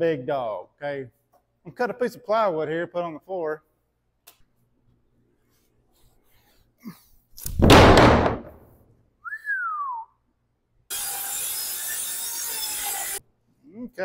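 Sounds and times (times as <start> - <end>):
board slapping onto floor: 7.5 - 8.6
falling whistle: 9.2 - 10.2
circular saw cutting: 10.9 - 13.2.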